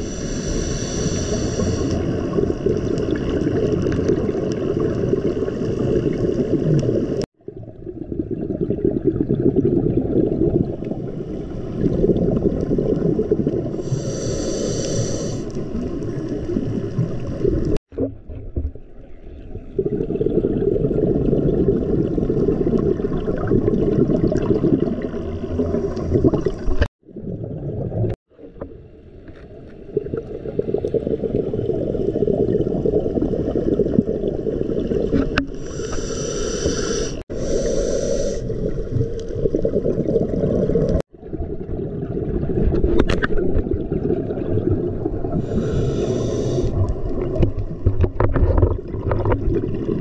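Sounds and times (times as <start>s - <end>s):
short hissing bursts: 0.0s - 2.0s, 13.8s - 15.5s, 35.5s - 38.5s, 45.4s - 46.7s.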